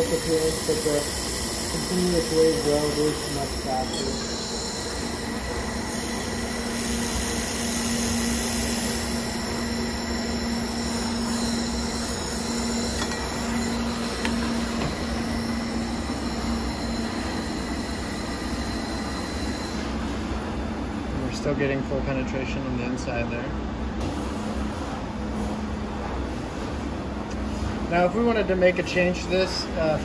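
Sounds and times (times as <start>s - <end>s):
laser welder humming and hissing: 0.0s - 20.2s.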